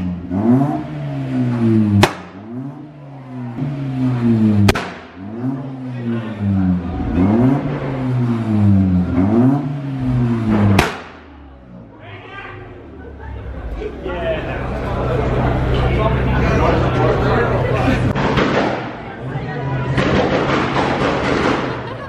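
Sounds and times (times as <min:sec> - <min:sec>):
car engine revving: 0:00.0 - 0:12.0, 0:12.6 - 0:22.0
sharp bangs: 0:01.5 - 0:02.6, 0:04.0 - 0:05.6, 0:07.6 - 0:11.5, 0:18.1 - 0:19.2, 0:19.9 - 0:22.0.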